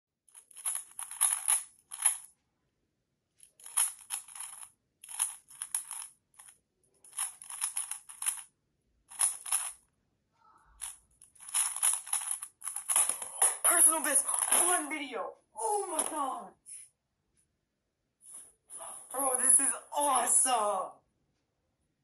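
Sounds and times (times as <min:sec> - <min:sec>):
puzzle cube clicking turns: 0:00.3 - 0:02.3, 0:03.4 - 0:08.5, 0:09.1 - 0:09.8, 0:10.8 - 0:14.8.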